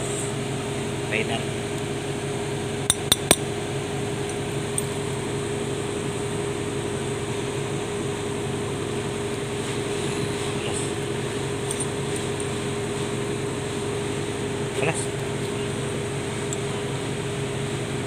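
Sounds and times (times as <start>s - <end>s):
steady background hum: 0.0s - 18.0s
tools clinking on metal: 2.9s - 3.4s.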